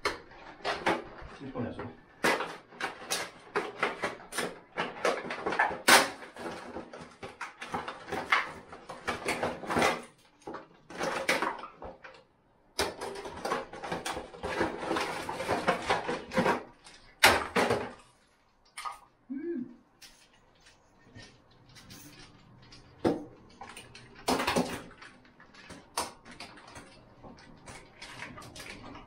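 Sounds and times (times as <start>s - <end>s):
handling parts and packaging: 0.0s - 19.0s, 20.0s - 29.0s.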